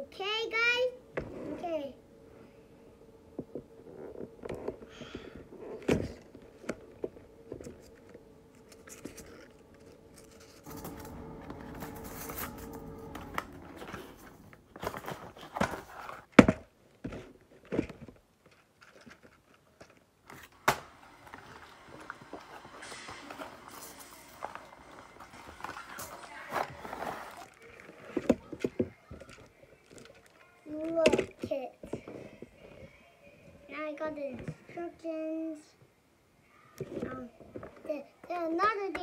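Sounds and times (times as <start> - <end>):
cardboard packaging handled: 4.2 - 20.6.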